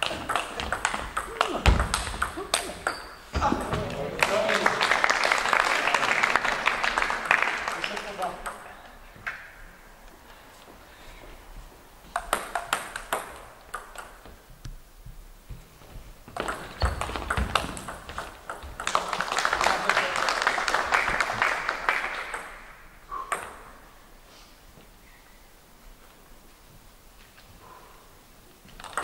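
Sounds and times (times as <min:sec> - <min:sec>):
table tennis ball clicks: 0:12.1 - 0:14.8.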